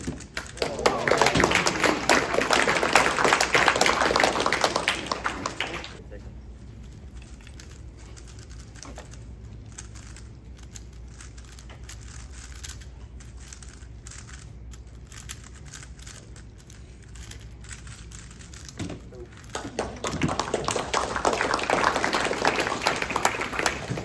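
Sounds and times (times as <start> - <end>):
low room hum: 0.0 - 24.0.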